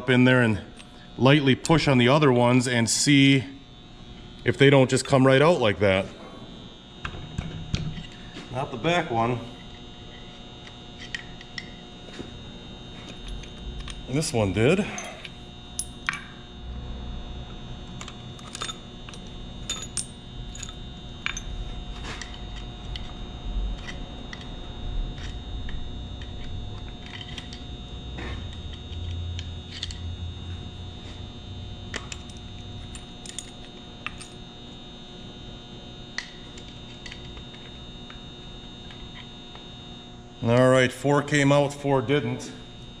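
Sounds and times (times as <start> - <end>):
steady electrical hum: 0.0 - 43.0.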